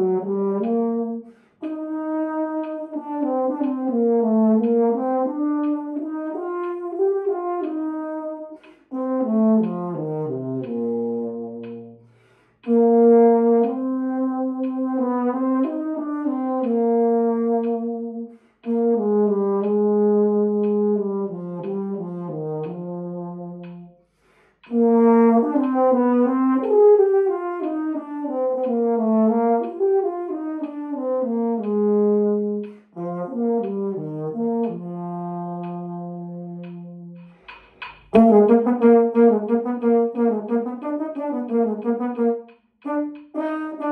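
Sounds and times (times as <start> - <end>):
baritone horn solo melody: 0.0 - 24.0, 24.7 - 37.3, 38.1 - 43.9.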